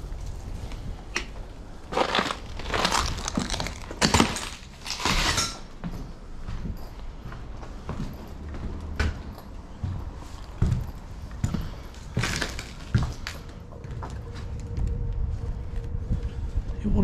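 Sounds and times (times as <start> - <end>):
crunching debris underfoot: 0.0 - 5.8, 9.8 - 15.2.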